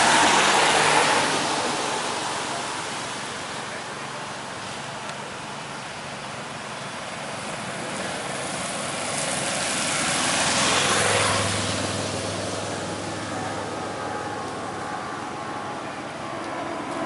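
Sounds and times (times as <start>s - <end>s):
bicycles riding past: 0.0s - 17.0s.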